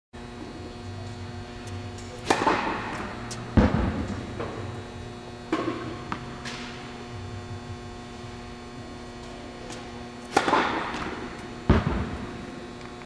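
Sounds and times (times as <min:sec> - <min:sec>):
electrical hum: 0:00.2 - 0:13.0
racket striking tennis ball: 0:02.0 - 0:04.6, 0:05.5 - 0:07.0, 0:09.7 - 0:12.2.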